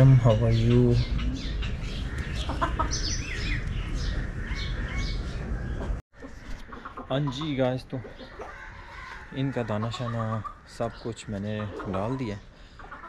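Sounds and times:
rooster clucking: 1.2s - 3.2s, 5.7s - 10.6s, 11.4s - 13.0s.

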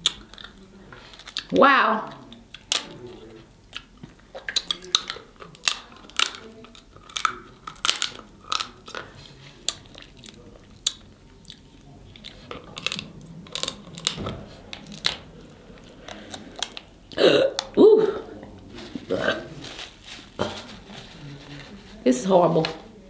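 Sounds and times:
chewing: 0.0s - 1.5s, 2.1s - 21.8s
crab shell cracking: 2.2s - 3.0s, 3.7s - 9.0s, 9.7s - 14.2s, 14.8s - 15.2s.

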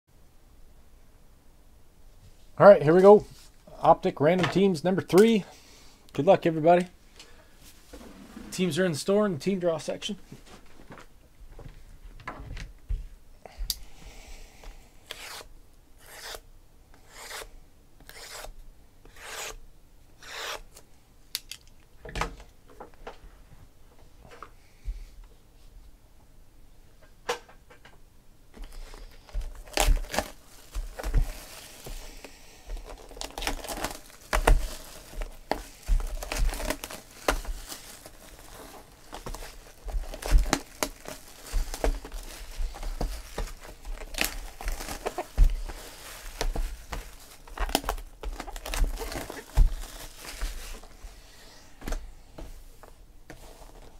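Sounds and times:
shrink wrap tearing and crinkling: 28.7s - 50.9s.

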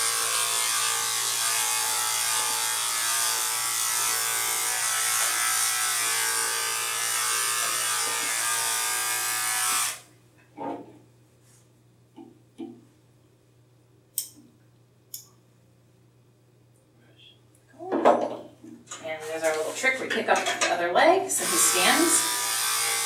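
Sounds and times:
electric clipper running: 0.0s - 10.1s, 21.4s - 23.0s.

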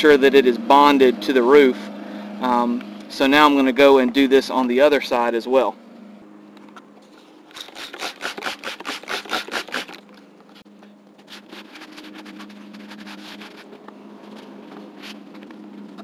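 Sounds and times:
towel rubbing rubber roof: 7.5s - 10.0s, 11.3s - 13.7s
spray bottle squirting: 7.5s - 10.1s.

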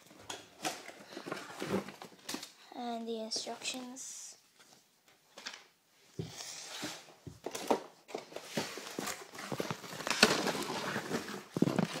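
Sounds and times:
cardboard rustling and scraping: 6.6s - 12.0s.

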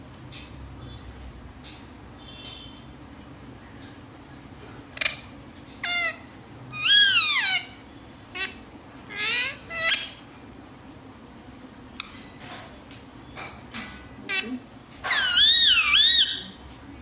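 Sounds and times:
parakeet squawking: 5.0s - 10.3s, 14.3s - 16.6s.

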